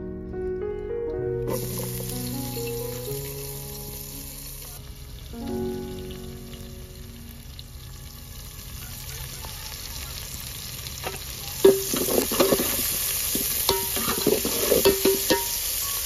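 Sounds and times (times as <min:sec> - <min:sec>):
vegetables sizzling in oil: 0:01.5 - 0:16.0
metal spatula scraping pot: 0:11.0 - 0:15.7.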